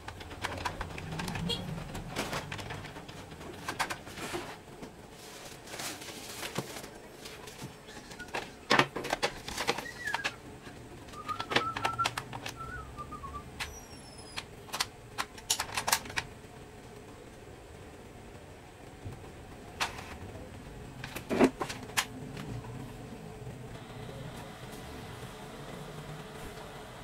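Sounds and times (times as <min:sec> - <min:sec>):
plastic parts clicking and rattling: 0:00.0 - 0:12.7, 0:13.6 - 0:16.4, 0:21.0 - 0:22.5.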